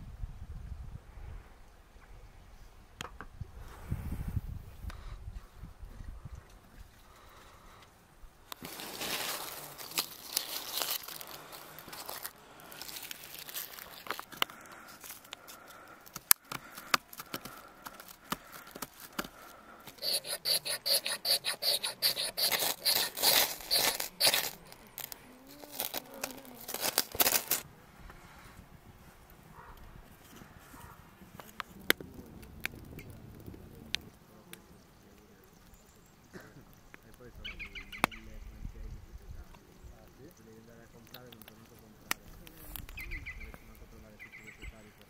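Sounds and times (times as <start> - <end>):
knife scraping wood: 19.9 - 27.6.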